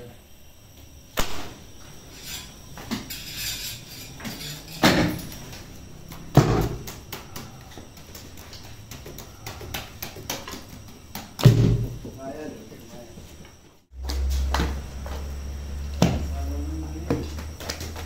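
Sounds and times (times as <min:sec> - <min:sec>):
dull thuds and knocks: 0:06.2 - 0:07.2, 0:08.9 - 0:12.2.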